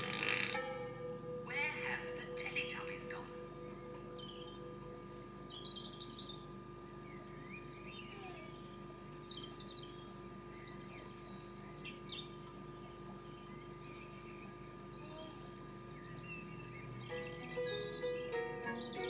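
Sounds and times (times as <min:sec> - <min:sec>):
small birds chirping: 0:00.0 - 0:19.0
tape playback hum: 0:00.0 - 0:19.0.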